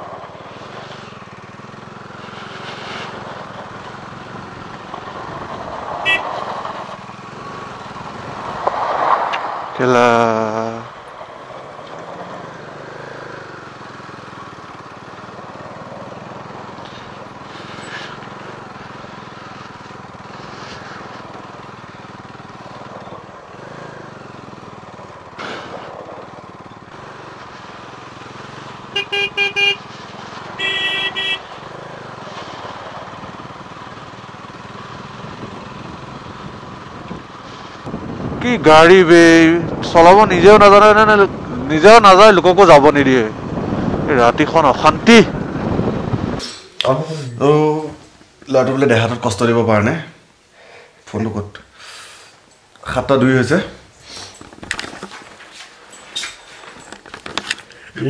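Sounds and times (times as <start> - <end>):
motorcycle engine: 0.0 - 50.5, 51.6 - 58.0
horn honking: 6.0 - 6.6, 28.6 - 31.8
wind noise: 35.2 - 41.9, 43.0 - 46.5.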